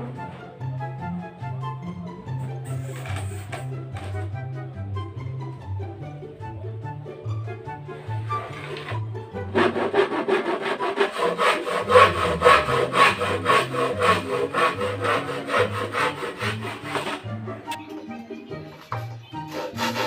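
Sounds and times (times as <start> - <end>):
hand saw cutting plywood: 2.7 - 4.3, 8.1 - 17.5, 19.4 - 20.0.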